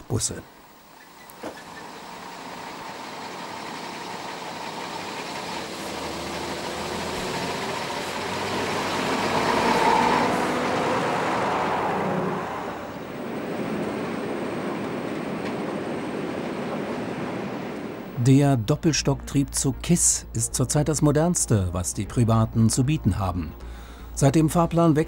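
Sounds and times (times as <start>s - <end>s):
railbus running noise from cab: 0.1s - 18.2s
railcar diesel engine running: 0.5s - 24.8s.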